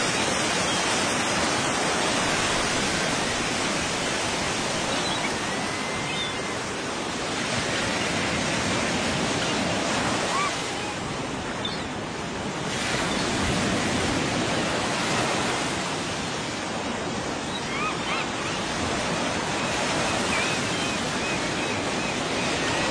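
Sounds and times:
surf rushing: 0:00.0 - 0:22.9
wind: 0:00.0 - 0:22.9.

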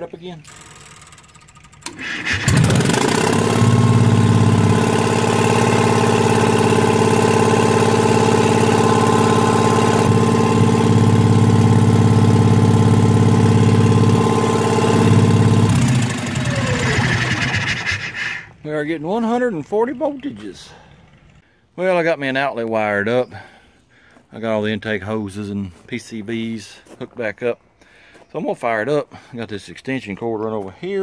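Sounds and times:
generator engine starting and running: 0:00.1 - 0:21.7.

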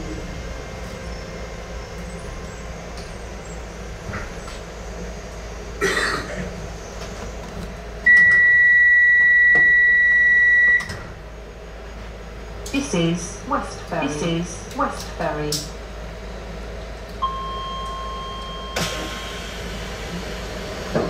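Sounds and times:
train hum: 0:00.0 - 0:21.0.

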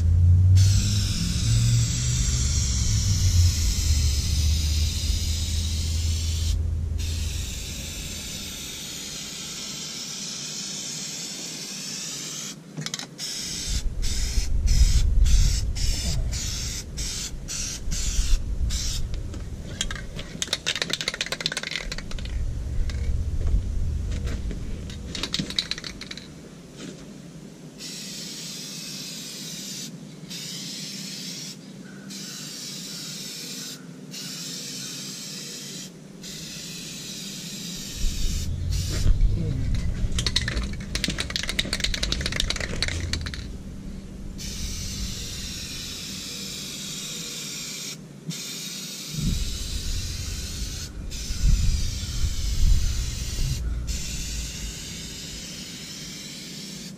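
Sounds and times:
low rumble: 0:00.0 - 0:08.7, 0:13.8 - 0:20.2, 0:21.8 - 0:25.2, 0:37.8 - 0:45.9, 0:49.2 - 0:55.0
aerosol spray can hissing: 0:00.6 - 0:12.6, 0:13.2 - 0:19.1, 0:27.8 - 0:31.6, 0:32.2 - 0:39.2, 0:39.8 - 0:43.5, 0:44.4 - 0:56.9.

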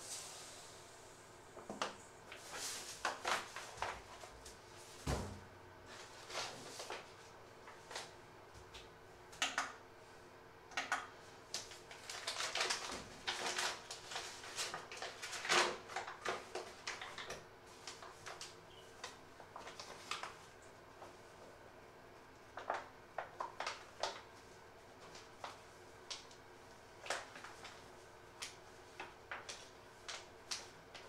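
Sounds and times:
faint steady hum: 0:00.0 - 0:31.0
paper bag crinkling: 0:02.3 - 0:04.3, 0:11.6 - 0:17.3.

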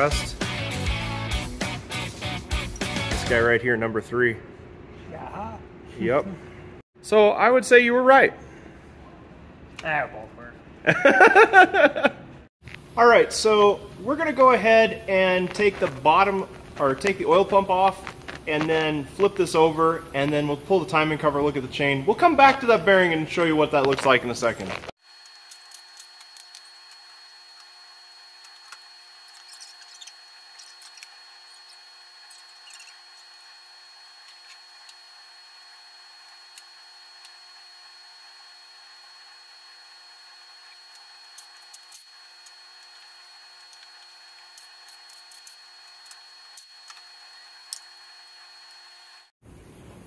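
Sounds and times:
faint shop hum: 0:01.9 - 0:50.0.

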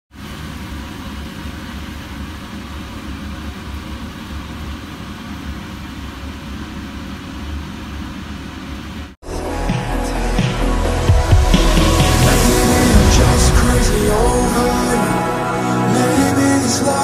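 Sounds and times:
kitchen appliance running with low hum: 0:00.2 - 0:09.2.

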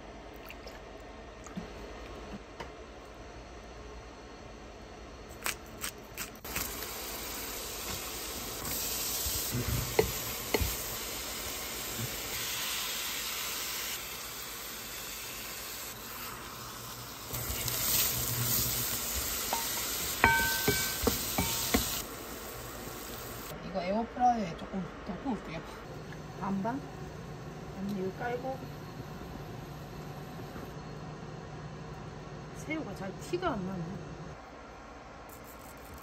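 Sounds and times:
food sizzling in a pan: 0:06.4 - 0:23.6.

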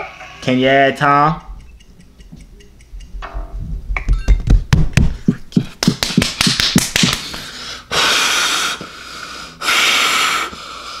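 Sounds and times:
man breathing heavily: 0:05.0 - 0:05.8, 0:07.1 - 0:11.0.

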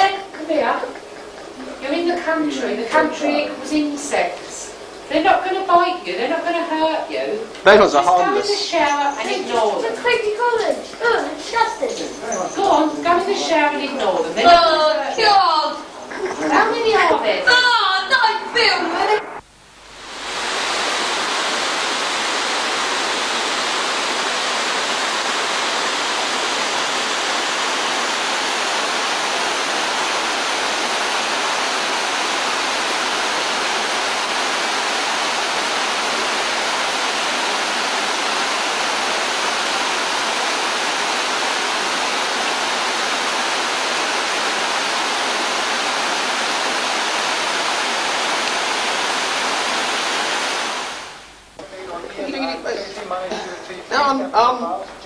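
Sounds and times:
water rushing down a fall: 0:20.0 - 0:51.3.

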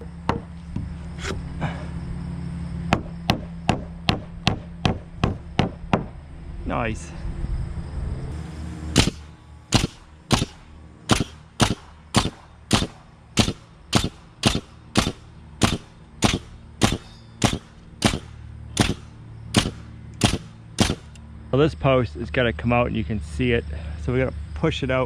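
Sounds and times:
nail gun firing: 0:09.0 - 0:21.2.

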